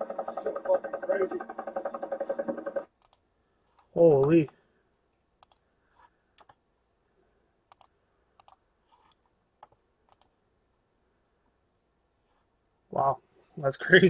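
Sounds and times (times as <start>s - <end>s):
computer mouse clicks: 1.8s - 3.9s, 5.4s - 6.6s, 7.7s - 10.4s.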